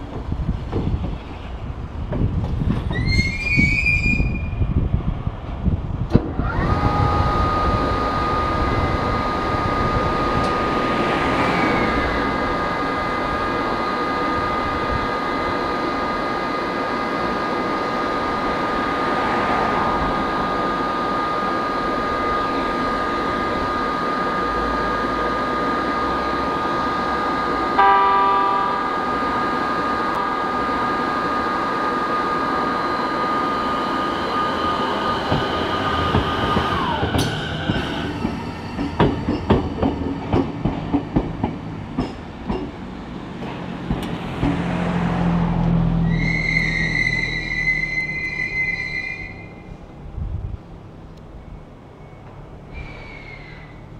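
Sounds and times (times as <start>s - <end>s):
electric train high-pitched whine: 0.1s - 50.2s
train horn blast: 27.8s - 29.3s.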